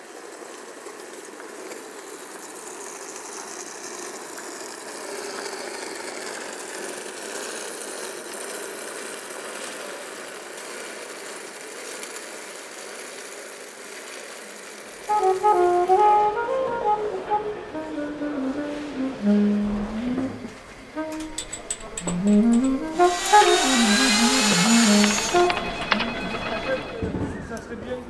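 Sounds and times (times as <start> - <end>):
footsteps: 19.5 - 27.5.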